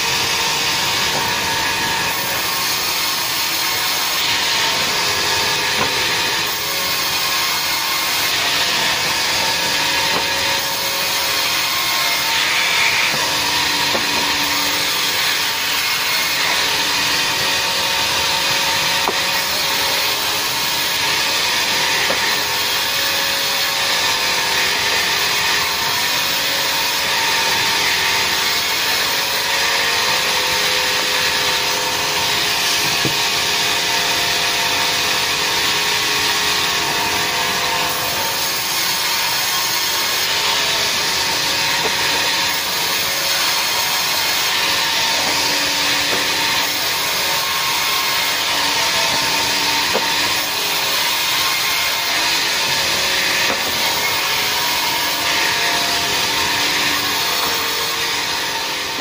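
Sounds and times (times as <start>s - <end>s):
band saw cutting timber: 0.0s - 59.0s.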